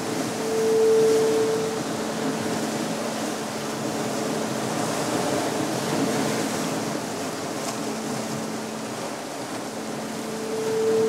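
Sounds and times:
low humming tone: 0:00.0 - 0:05.0, 0:09.8 - 0:11.0
surf washing over rocks: 0:00.0 - 0:11.0.

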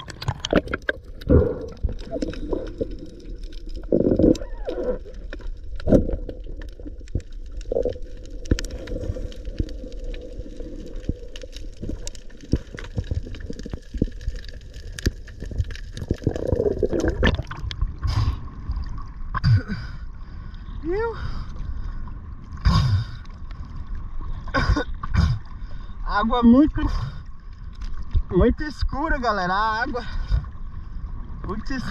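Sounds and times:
water sloshing and splashing: 0:00.0 - 0:19.4
muffled underwater water rushing: 0:00.0 - 0:31.9.

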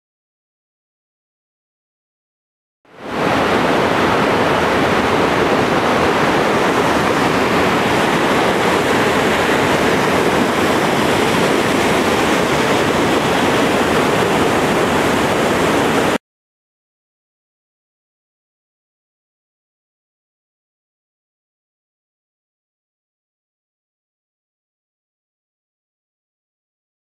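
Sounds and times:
waterfall rushing over rocks: 0:03.0 - 0:16.2.

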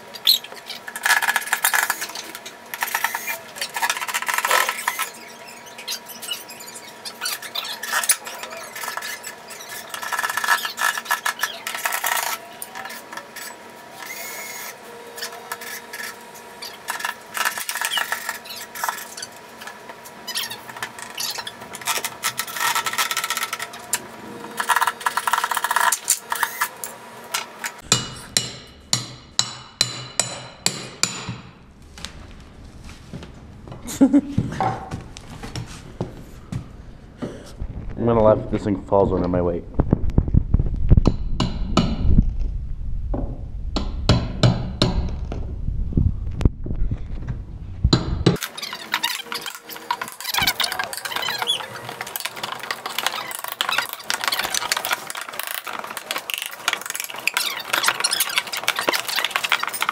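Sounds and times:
hand tools scraping and knocking: 0:00.8 - 0:14.2, 0:15.2 - 0:28.4, 0:48.3 - 0:59.9.

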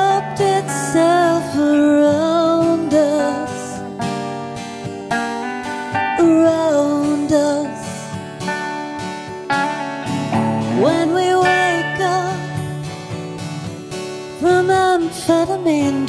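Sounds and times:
person singing: 0:00.0 - 0:04.0, 0:05.8 - 0:08.6, 0:09.5 - 0:13.4, 0:14.0 - 0:16.0
acoustic guitar strumming: 0:00.0 - 0:16.0.

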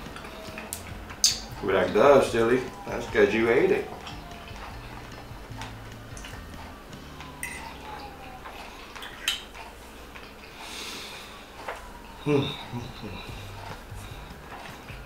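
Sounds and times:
quiet chewing: 0:03.9 - 0:15.0.

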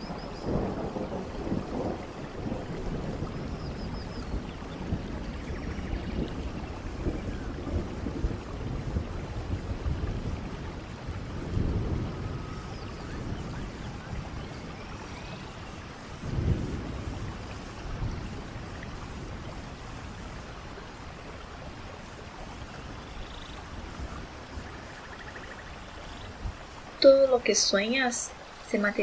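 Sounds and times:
distant thunder rolls: 0:00.0 - 0:21.7, 0:22.6 - 0:29.0
steady rain: 0:00.0 - 0:29.0.

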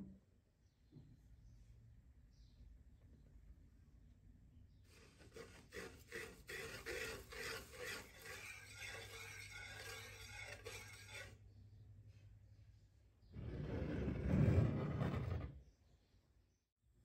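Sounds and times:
whisk scraping metal pan: 0:04.9 - 0:11.4.

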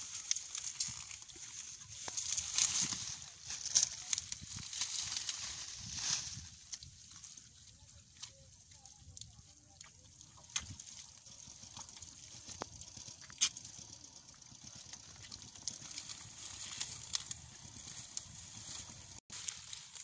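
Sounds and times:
small wet clicks and splashes: 0:06.6 - 0:14.0.

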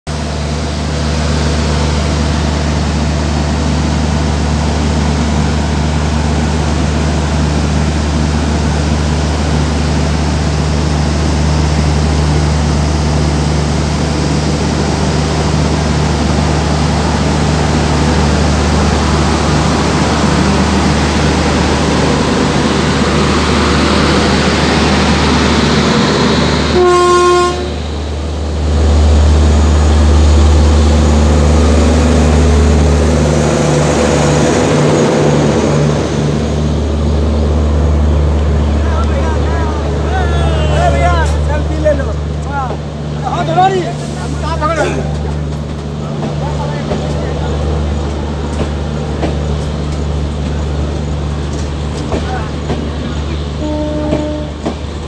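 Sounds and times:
train wheels rumbling: 0:00.1 - 0:55.0
train horn toot: 0:26.7 - 0:27.8, 0:53.6 - 0:54.8.

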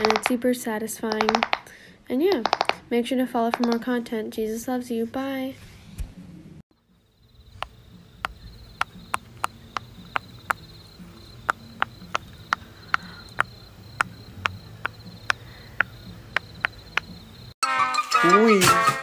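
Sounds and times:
fidget toy bubbles popping: 0:01.2 - 0:01.6, 0:02.4 - 0:02.8, 0:03.5 - 0:03.9
high insect trill: 0:06.8 - 0:17.6.

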